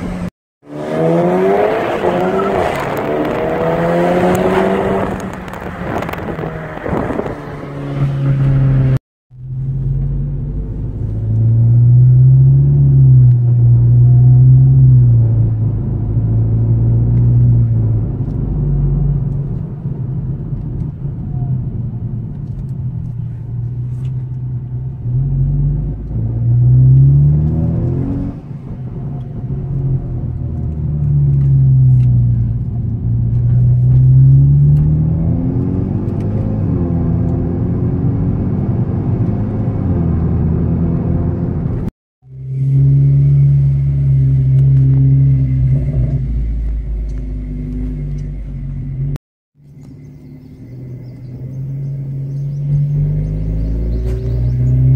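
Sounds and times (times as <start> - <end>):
car engine revving: 0.0 - 20.3, 22.4 - 49.2, 49.8 - 54.9.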